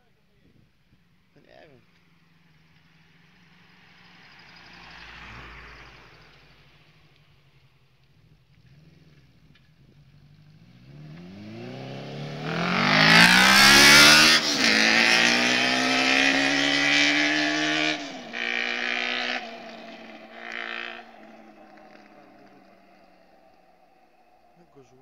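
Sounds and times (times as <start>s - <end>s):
quad engine accelerating past: 8.6s - 25.0s.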